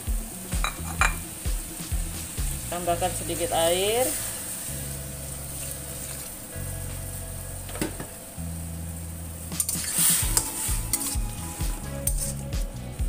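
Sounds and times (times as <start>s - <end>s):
background music with bass: 0.0s - 13.0s
food sizzling in a wok: 0.0s - 13.0s
metal spatula scraping: 9.5s - 12.6s.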